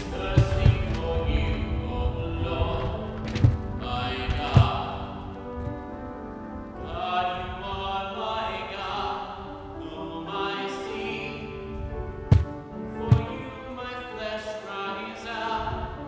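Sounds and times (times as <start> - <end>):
solo voice singing: 0.0 - 5.6, 6.8 - 16.0
sustained accompaniment: 0.0 - 16.0
sharp knock: 12.3 - 13.3.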